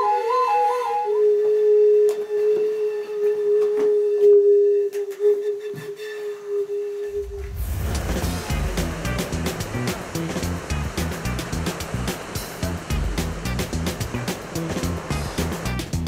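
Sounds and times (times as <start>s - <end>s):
clay whistle playing notes: 0.0s - 7.9s
ocean surf: 7.1s - 16.0s.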